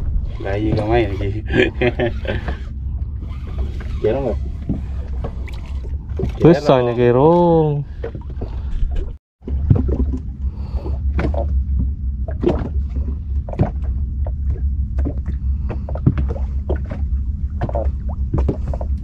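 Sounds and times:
low boat rumble: 0.0 - 19.0.

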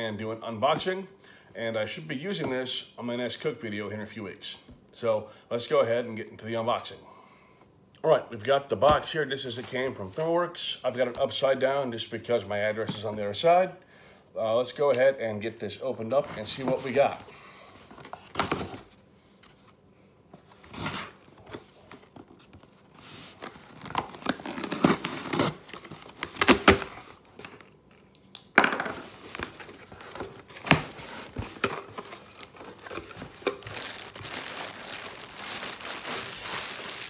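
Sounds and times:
packing tape torn away: 23.4 - 28.1, 30.6 - 37.0
plastic air cushion crinkling: 29.1 - 37.0.

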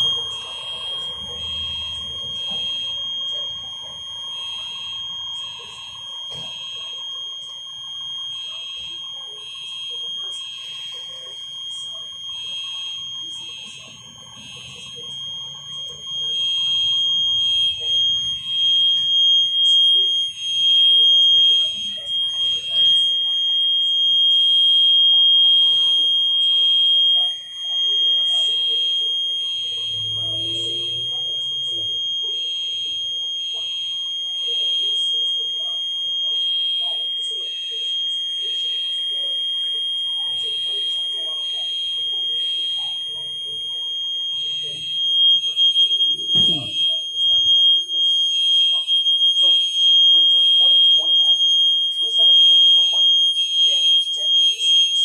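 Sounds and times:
fire alarm tones: 0.0 - 55.0.

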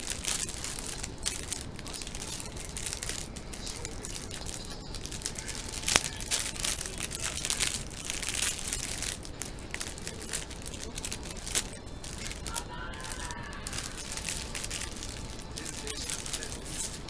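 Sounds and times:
plastic bag crinkling: 0.0 - 17.0
plastic bag snap: 0.0 - 17.0.

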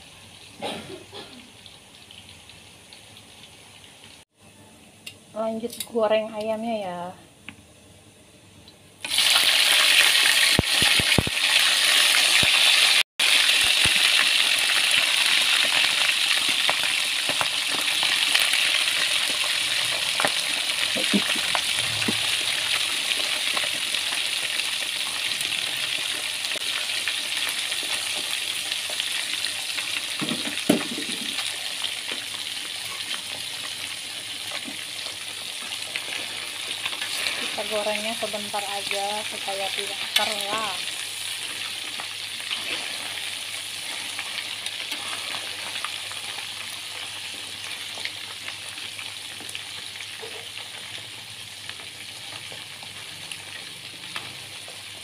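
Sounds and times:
chicken deep-frying in oil: 0.0 - 4.2, 9.0 - 55.0
oil crackles: 9.0 - 49.9.

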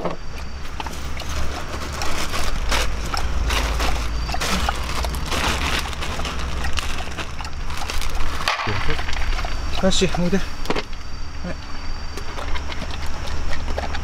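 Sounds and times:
plastic bowls clattering: 0.0 - 11.0
steady low hum: 0.0 - 14.0
plastic bag crinkling: 0.6 - 10.4.

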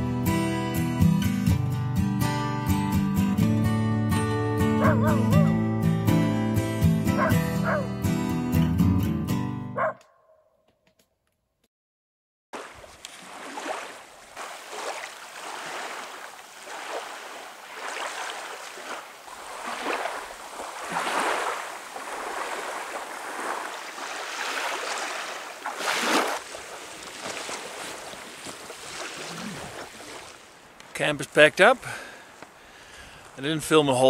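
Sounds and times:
small waves washing ashore: 12.6 - 31.0.

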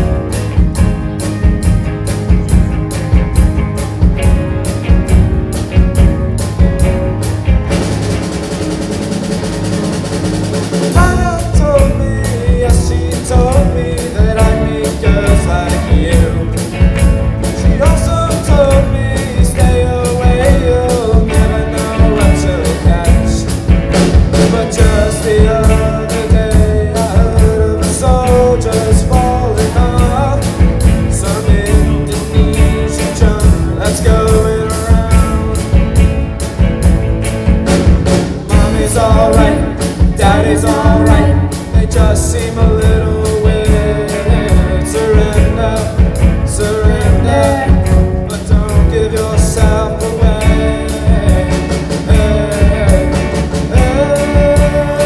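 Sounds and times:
bending lead guitar melody: 0.0 - 55.0
drum hits: 0.0 - 55.0
rock band playing live: 0.0 - 55.0.

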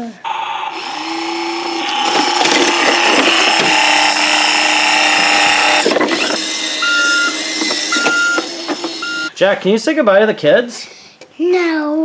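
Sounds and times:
toy truck mechanical running noise: 0.3 - 9.3
electronic reversing beep: 5.3 - 9.3.

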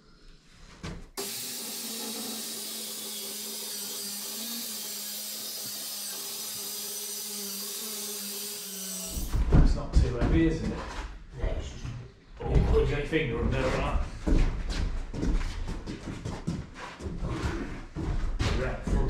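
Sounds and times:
circular saw cutting wood: 1.2 - 9.5.

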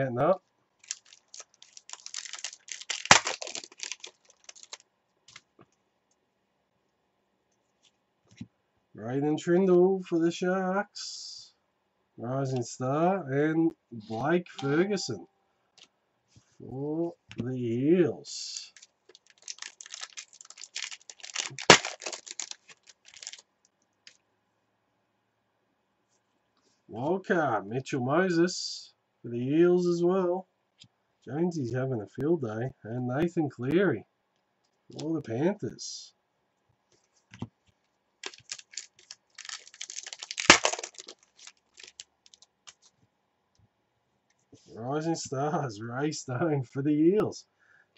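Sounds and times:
foil wrapper tearing and crinkling: 0.8 - 5.4, 18.5 - 23.4, 38.2 - 42.9
sharp crack of foil: 0.8 - 5.4, 18.5 - 23.4, 38.2 - 42.9.

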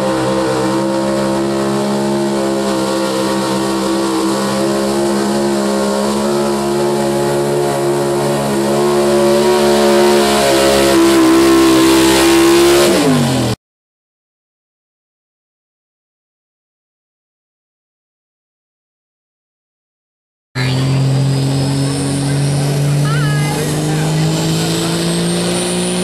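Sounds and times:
truck engine at full throttle: 0.0 - 13.6, 20.6 - 26.0.

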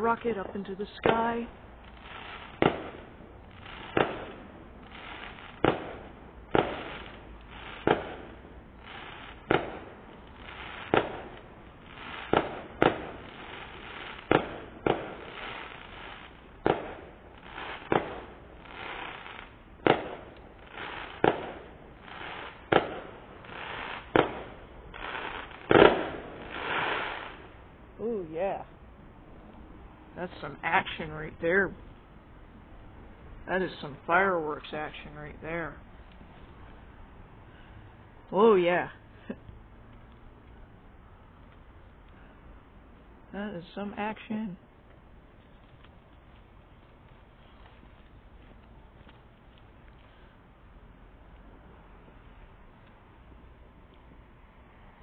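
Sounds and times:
fireworks bangs: 0.0 - 27.7
fireworks crackling hiss: 0.0 - 28.9, 30.1 - 54.9.

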